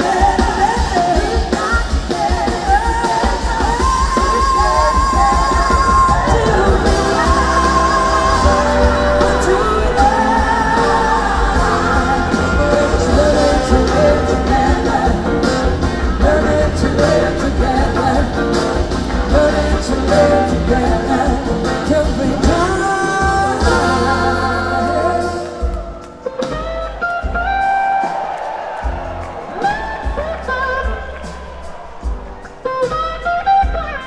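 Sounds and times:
woman singing into a microphone: 0.0s - 25.8s
drums: 0.0s - 34.0s
electric guitar: 0.0s - 34.0s.

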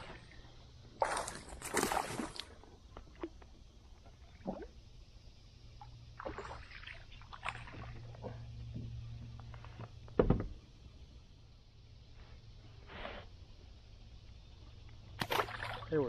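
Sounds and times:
fish splashing in water: 1.0s - 2.6s, 15.2s - 16.0s.

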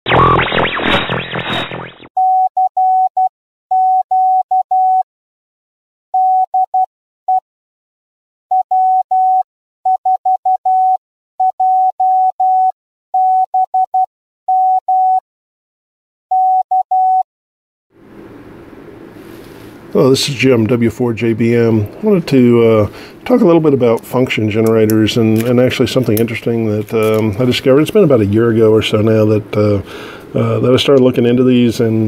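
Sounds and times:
morse code beeps: 0.1s - 5.0s, 6.2s - 7.4s, 8.5s - 15.2s, 16.3s - 17.2s.

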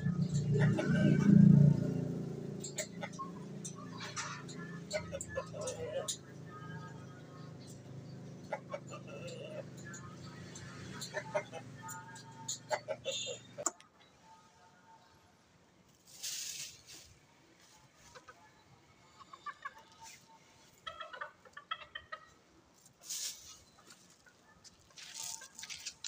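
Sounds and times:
chickens clucking: 0.0s - 15.1s, 16.1s - 26.0s
rustling hiss: 15.9s - 17.2s, 22.9s - 24.0s.

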